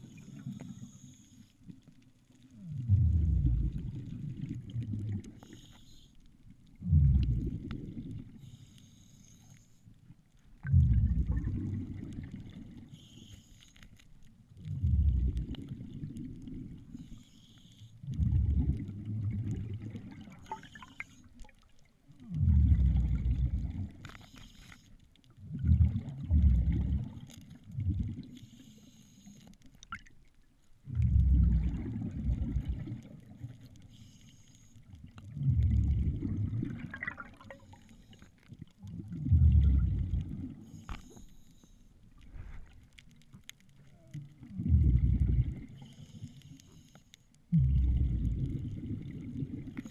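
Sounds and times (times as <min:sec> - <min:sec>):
regulator hiss on inhale: 0:00.0 - 0:01.8, 0:05.3 - 0:06.4, 0:08.2 - 0:10.0, 0:12.6 - 0:14.2, 0:16.7 - 0:18.1, 0:23.9 - 0:25.0, 0:28.3 - 0:29.8, 0:33.4 - 0:35.0, 0:37.5 - 0:38.4, 0:40.6 - 0:42.8, 0:45.6 - 0:47.5
exhaled bubbles gurgling: 0:02.4 - 0:05.7, 0:06.6 - 0:08.6, 0:10.5 - 0:13.2, 0:14.5 - 0:17.3, 0:18.0 - 0:24.2, 0:25.3 - 0:28.6, 0:29.8 - 0:34.0, 0:34.8 - 0:40.8, 0:42.1 - 0:46.5, 0:47.5 - 0:49.9.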